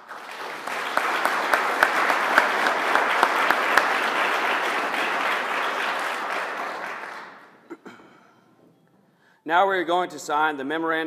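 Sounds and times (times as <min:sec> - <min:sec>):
audience applauding: 0:00.0 - 0:07.6
close loud claps: 0:00.0 - 0:07.6.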